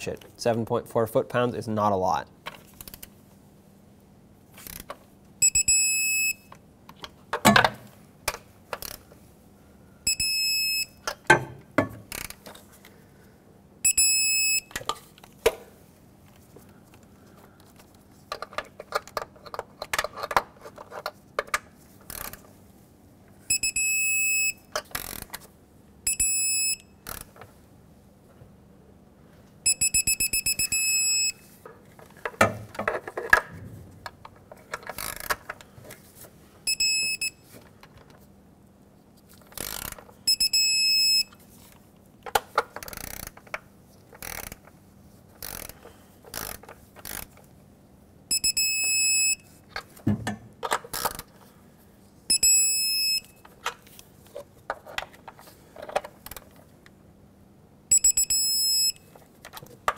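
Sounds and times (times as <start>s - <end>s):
torque wrench beeping: 5.4s - 6.5s, 10.0s - 11.1s, 13.8s - 14.8s, 23.5s - 25.3s, 26.0s - 27.2s, 29.6s - 31.4s, 36.7s - 37.4s, 39.6s - 41.3s, 48.3s - 49.4s, 52.3s - 53.4s, 57.9s - 59.0s.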